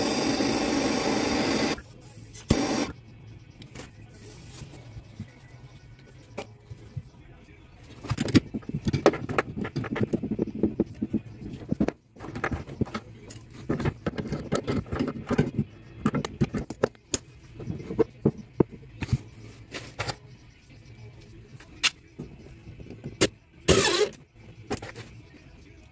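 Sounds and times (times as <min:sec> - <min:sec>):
metal pipe clinking and rattling: 0:08.0 - 0:17.0.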